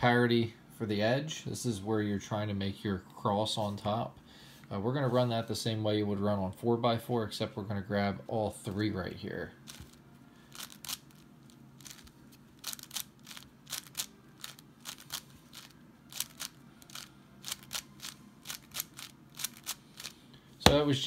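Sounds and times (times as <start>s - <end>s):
faint low hum: 0.0s - 21.0s
puzzle cube clicking: 10.6s - 11.2s, 11.8s - 20.2s.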